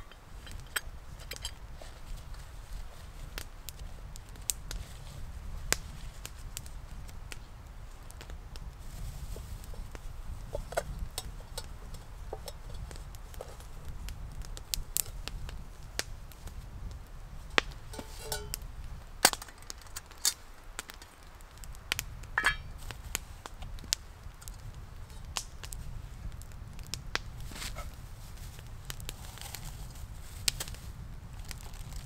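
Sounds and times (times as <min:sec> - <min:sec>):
metal cookware clinking: 0:17.9 - 0:18.6, 0:22.4 - 0:22.8.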